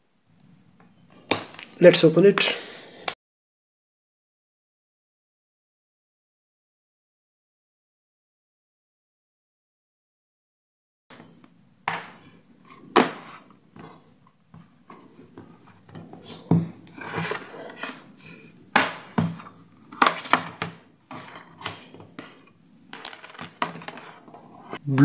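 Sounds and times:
plastic scraping: 16.1 - 18.1.

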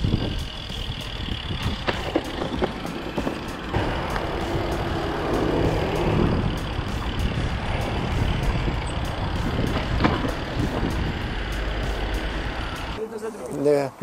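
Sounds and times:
bicycle tyres rumbling on bricks: 0.0 - 11.2
passing vehicles: 0.0 - 14.0.

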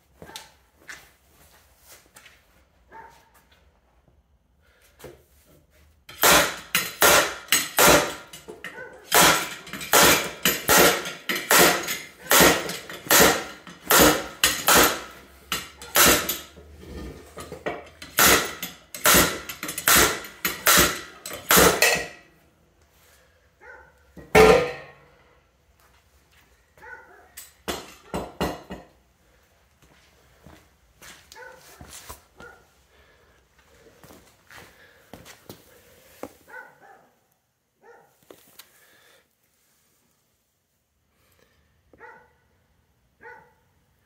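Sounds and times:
slide hammer metallic clanks: 6.1 - 16.7, 17.4 - 22.3, 24.2 - 25.0.

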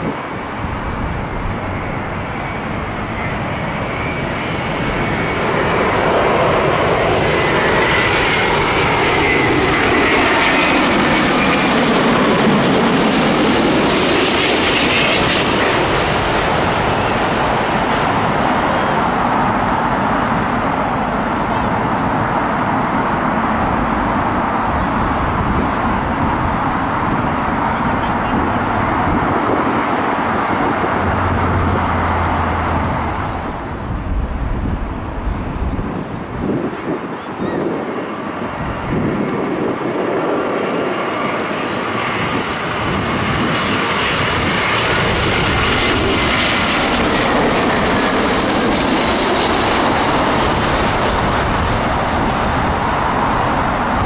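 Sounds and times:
jet airliner passing overhead: 0.0 - 54.0.

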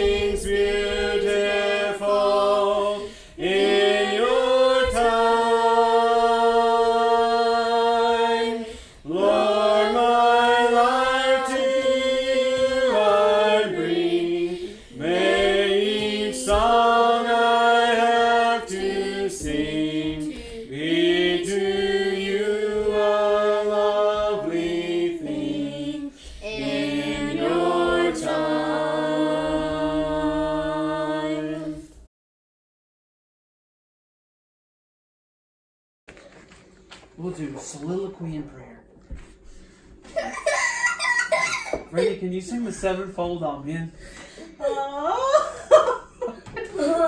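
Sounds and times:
group singing a hymn a cappella: 0.0 - 32.1.

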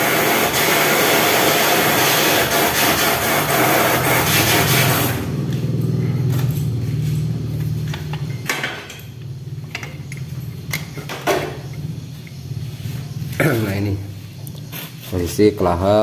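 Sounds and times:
low hum: 5.0 - 14.6.

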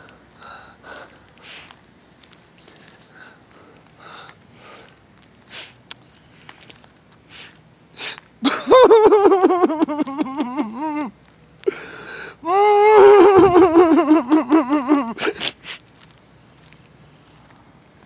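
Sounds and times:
faint sniffs: 0.4 - 1.8, 5.5 - 6.6, 7.3 - 8.2, 15.2 - 15.9
man's high wavering wordless vocal: 8.9 - 11.1, 12.4 - 15.2.

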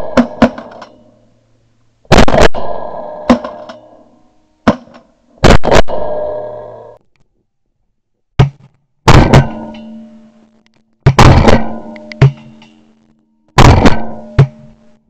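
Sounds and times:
shotgun blasts echoing: 2.1 - 3.9, 4.7 - 6.7, 9.1 - 9.7, 11.0 - 12.6, 13.6 - 14.6.

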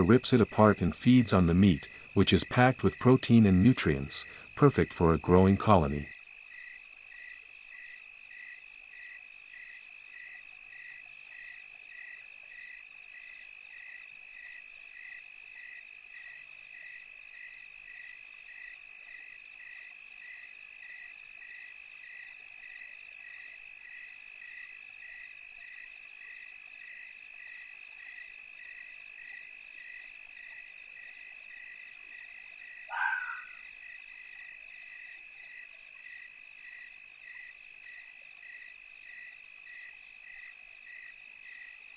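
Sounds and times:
insects trilling: 0.0 - 41.9
loud short animal call: 32.9 - 33.6
regular chirp: 32.9 - 33.6.

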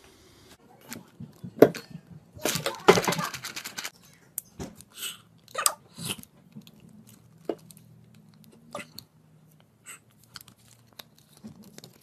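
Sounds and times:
plastic crackles: 2.4 - 4.0, 6.2 - 12.0.

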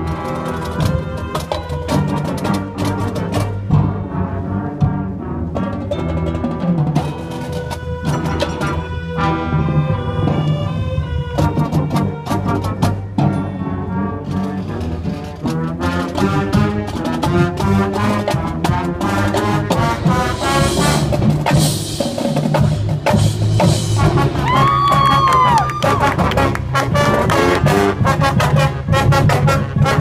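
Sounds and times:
marching band brass: 0.0 - 30.0
marching percussion: 0.0 - 30.0
sousaphone bass line: 6.0 - 14.2.

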